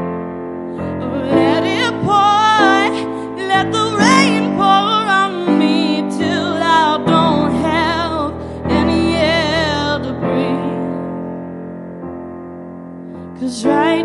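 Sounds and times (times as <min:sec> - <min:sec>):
woman singing with vibrato: 0:00.8 - 0:11.3, 0:13.4 - 0:14.0.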